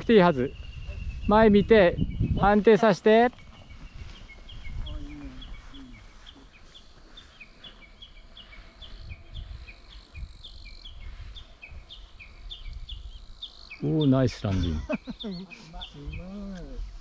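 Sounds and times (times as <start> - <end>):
wind rumble on microphone: 0.0 - 6.5, 8.1 - 13.6, 15.9 - 17.0.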